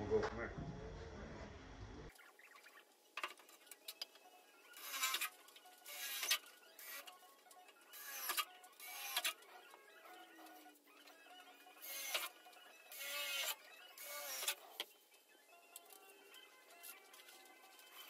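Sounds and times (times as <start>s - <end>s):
cordless drill motor: 4.7s - 7.2s, 7.8s - 14.9s.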